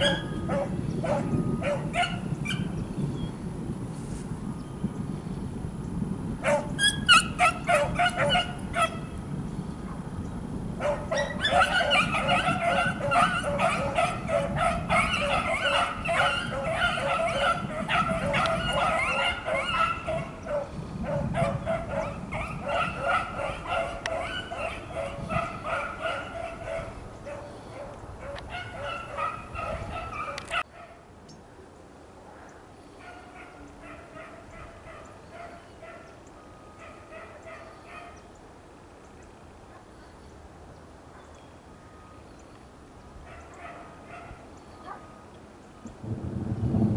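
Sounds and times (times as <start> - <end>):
dogs baying: 0.0 - 2.7, 6.4 - 9.1, 10.8 - 31.0, 43.3 - 45.2
low rumble: 46.0 - 46.9.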